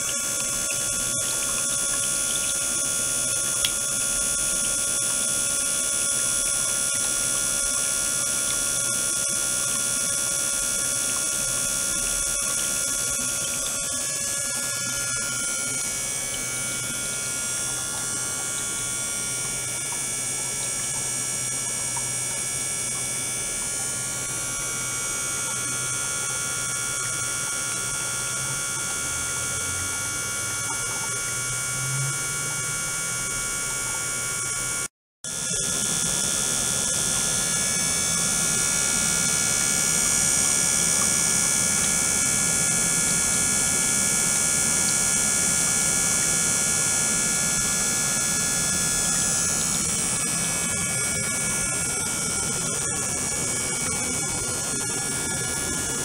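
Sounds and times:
high-pitched whining tones: 0:00.0 - 0:34.4
electrical hum: 0:00.0 - 0:56.0.

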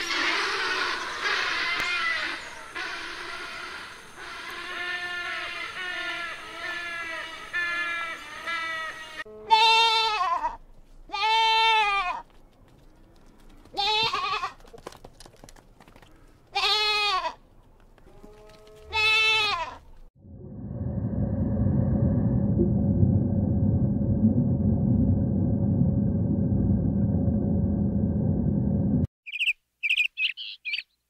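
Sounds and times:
goat bleating: 0:07.8 - 0:12.2, 0:13.8 - 0:14.6, 0:16.5 - 0:17.4, 0:18.1 - 0:19.9.

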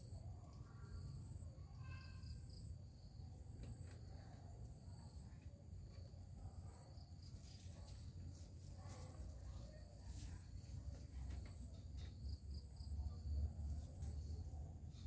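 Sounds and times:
faint insects trilling: 0:00.0 - 0:08.4.

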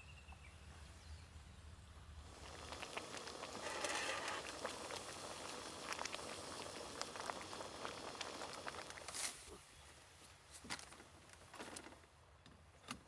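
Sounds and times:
water boiling in a pot: 0:02.2 - 0:09.5.

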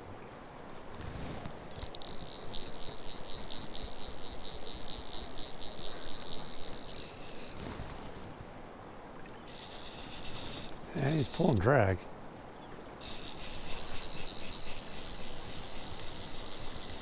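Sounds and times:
fly reel drag clicking: 0:01.6 - 0:08.1, 0:09.5 - 0:11.5, 0:13.0 - 0:17.0.

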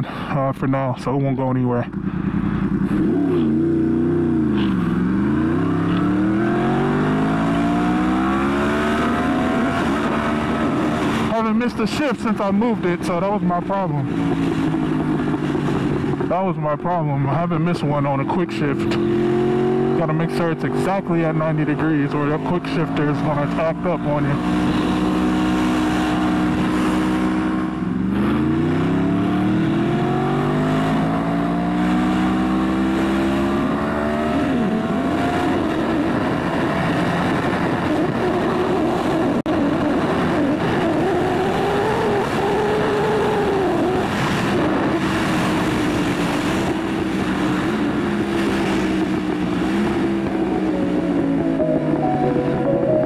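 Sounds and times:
motorcycle engine accelerating: 0:01.8 - 0:53.0
wind noise: 0:14.0 - 0:16.9, 0:33.6 - 0:51.6.

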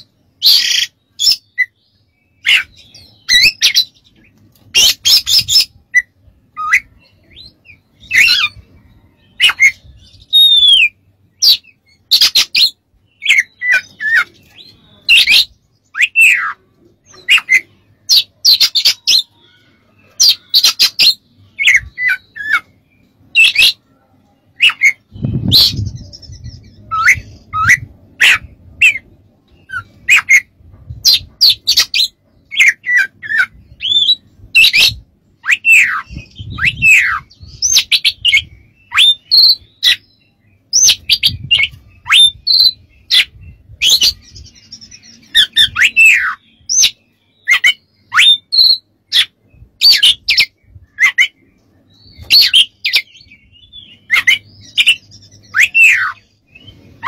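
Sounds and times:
bird singing varied song: 0:00.0 - 0:57.0.

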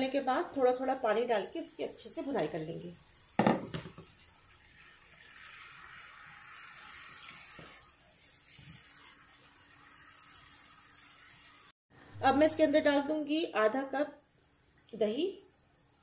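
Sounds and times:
spice paste sizzling in a pan: 0:00.0 - 0:11.8.

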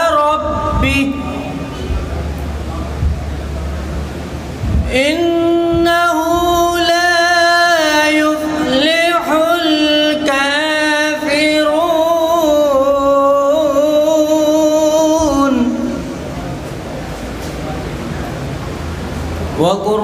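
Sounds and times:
man chanting: 0:00.0 - 0:02.0, 0:04.7 - 0:16.3, 0:19.6 - 0:20.0.

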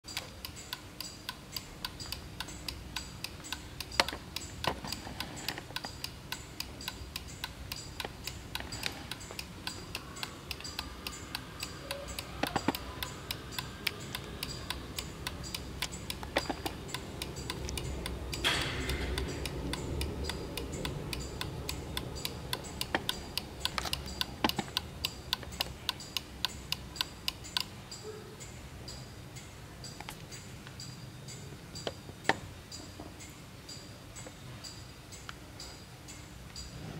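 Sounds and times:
wall clock ticking fast: 0:00.0 - 0:28.0
louder clock clicks: 0:00.1 - 0:27.7.

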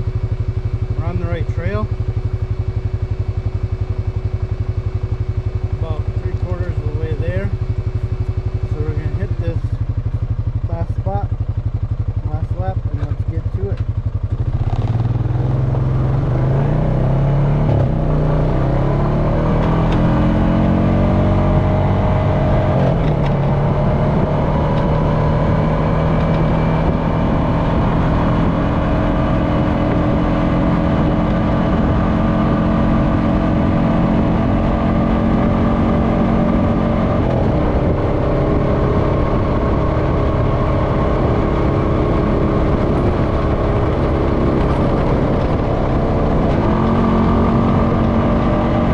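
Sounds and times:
atv engine running: 0:00.0 - 0:48.9.

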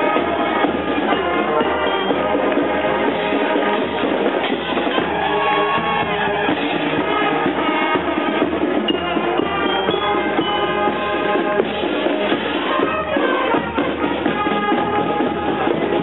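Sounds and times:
marching band playing: 0:00.0 - 0:16.0.

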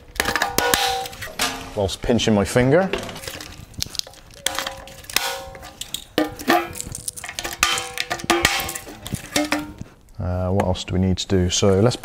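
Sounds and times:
metal knocks and clanks: 0:00.1 - 0:01.8, 0:04.4 - 0:09.9.

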